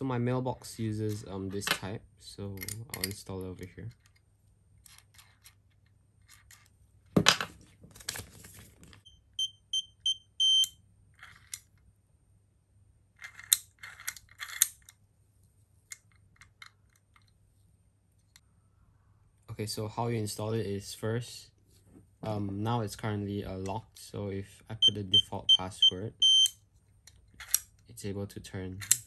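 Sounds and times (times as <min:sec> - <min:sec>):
electronic lock beeping: 0:09.0 - 0:10.8, 0:24.8 - 0:26.6.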